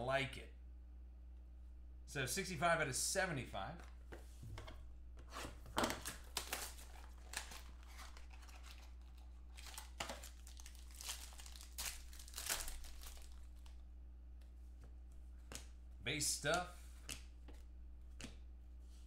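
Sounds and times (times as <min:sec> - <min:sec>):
plastic wrapping crinkling and tearing: 0:05.8 - 0:13.8.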